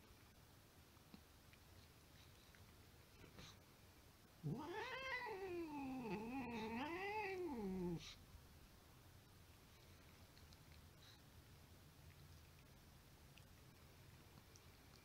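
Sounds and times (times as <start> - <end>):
cat yowling: 4.4 - 8.0.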